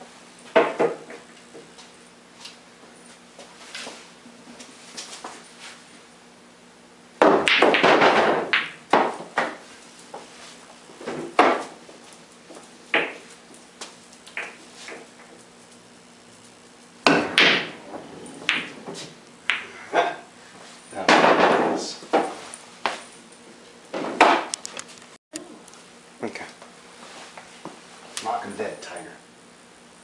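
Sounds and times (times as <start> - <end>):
pool balls clacking: 0.5 - 1.2, 7.2 - 9.6, 11.0 - 11.8, 14.3 - 15.4, 17.0 - 20.3, 21.0 - 22.4
cue striking ball: 7.2 - 9.6, 13.0 - 13.2, 17.0 - 19.9.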